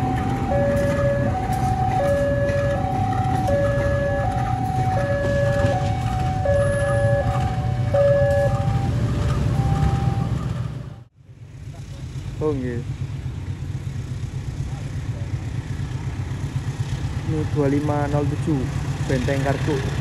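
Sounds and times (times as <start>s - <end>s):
two-tone crossing alarm: 0.0s - 11.1s
diesel locomotive rumble: 0.0s - 20.0s.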